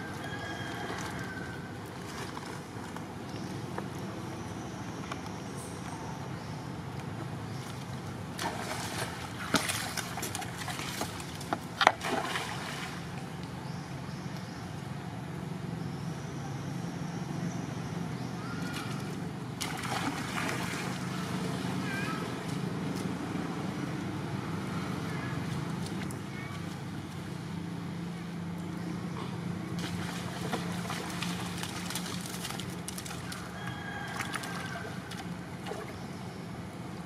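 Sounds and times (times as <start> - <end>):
monkeys splashing in water: 8.3 - 13.2, 18.5 - 22.6, 29.7 - 36.0.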